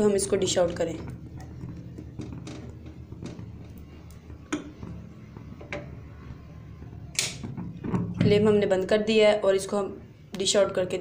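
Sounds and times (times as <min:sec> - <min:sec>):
spoon stirring thick syrup: 0:00.0 - 0:07.9.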